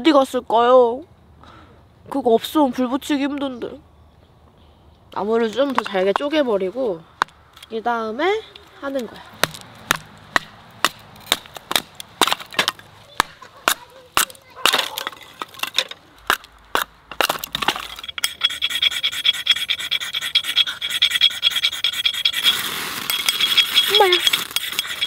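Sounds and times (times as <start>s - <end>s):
knife splitting kindling: 8.9s - 19.5s
ferro rod striking: 9.4s - 18.6s
rasping scrape: 13.6s - 25.0s.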